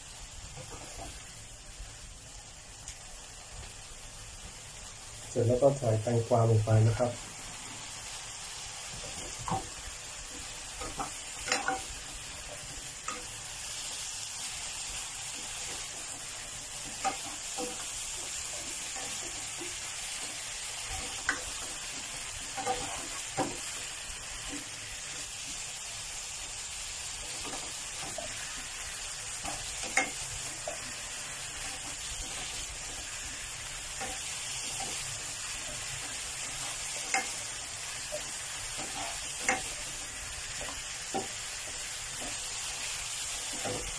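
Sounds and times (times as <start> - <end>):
food sizzling in a pan: 0.0 - 43.9
spatula scraping and knocking pan: 9.0 - 25.8, 27.0 - 43.9.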